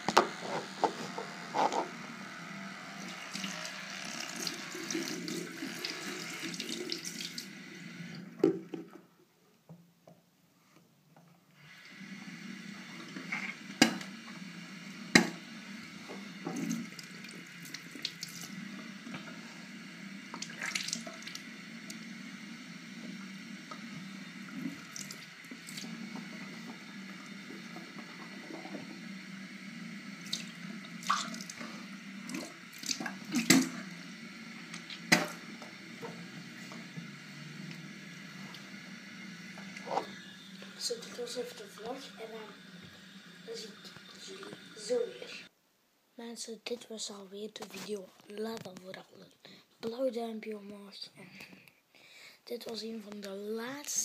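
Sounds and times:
tap water running into sink: 3.0 - 9.0, 13.0 - 14.2, 15.1 - 19.4, 20.3 - 22.0, 24.4 - 29.0, 30.2 - 33.9, 34.7 - 36.2.

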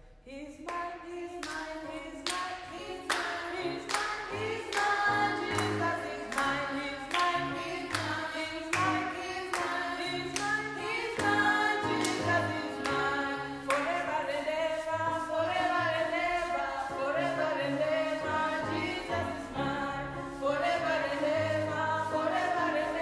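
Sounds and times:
hands clapping on the beat: 1.4 - 13.9
group singing gospel song: 2.3 - 23.0.

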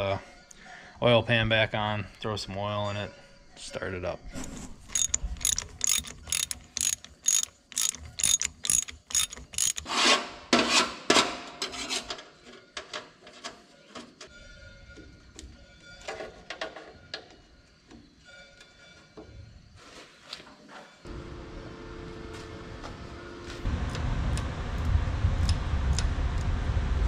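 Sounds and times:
ratchet wrench clicking: 4.9 - 9.9.

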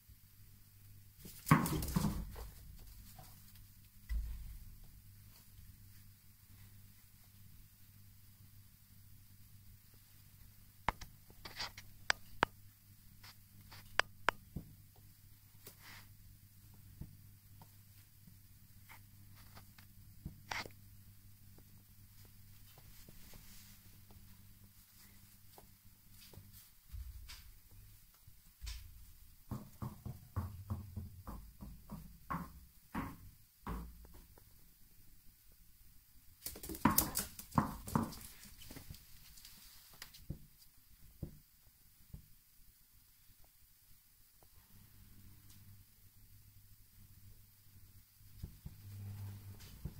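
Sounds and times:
ball bouncing down stairs: 1.2 - 3.4, 4.0 - 4.9, 26.9 - 27.8, 28.6 - 34.6, 36.4 - 39.0
dog playing with ball clicking: 36.4 - 38.4.

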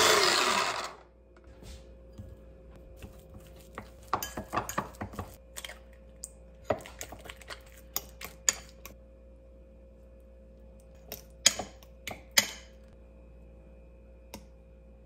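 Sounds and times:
fork clinking and scraping ceramic bowl: 3.0 - 5.8.

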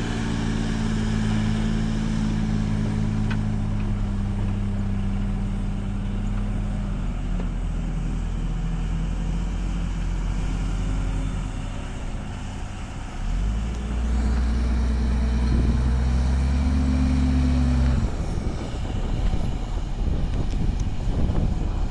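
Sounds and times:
diesel truck engine labouring: 0.0 - 21.9.

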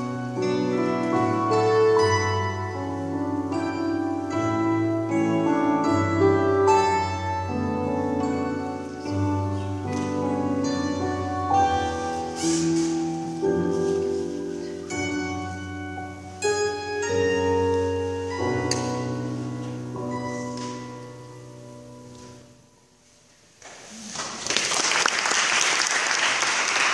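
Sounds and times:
hammered dulcimers playing: 0.0 - 21.9
audience applauding: 23.7 - 26.9.

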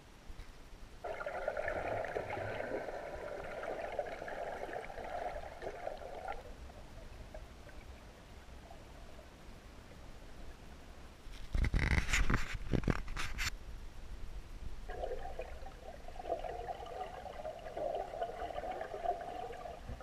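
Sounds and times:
water bubbling underwater: 1.0 - 9.0, 14.9 - 20.0.

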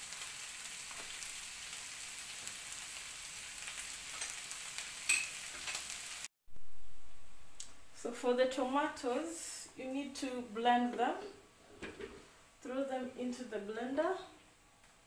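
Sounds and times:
food sizzling in frying pan: 0.0 - 6.3
sharp clink: 5.1 - 5.4.

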